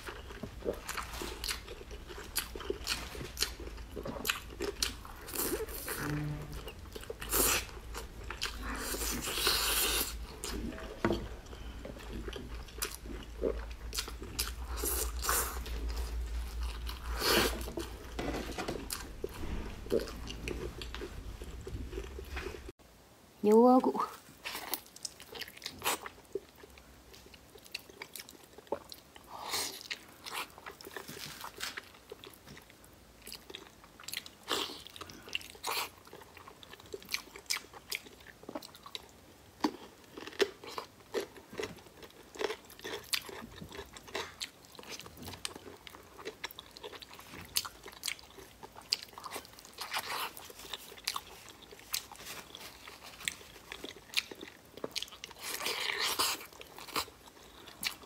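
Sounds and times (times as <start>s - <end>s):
person biting and chewing meat: 6.7s - 22.7s, 39.6s - 58.0s.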